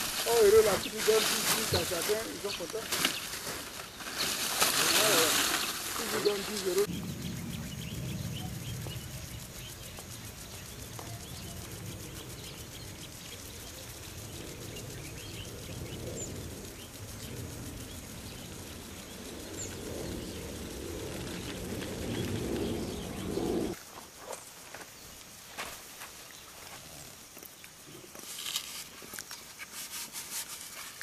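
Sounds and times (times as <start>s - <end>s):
low rumble of open-air noise: 0.0s - 23.8s.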